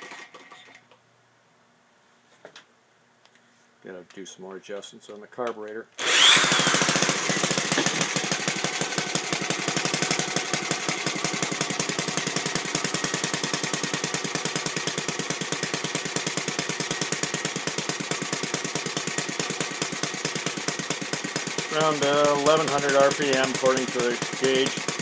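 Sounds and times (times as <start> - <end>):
small engine popping: 6.0 - 25.0.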